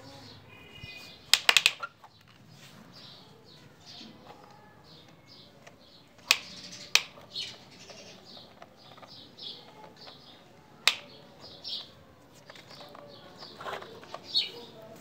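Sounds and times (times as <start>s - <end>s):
small birds chirping: 0.0s - 15.0s
plastic toy click: 1.3s - 2.3s, 4.2s - 11.9s.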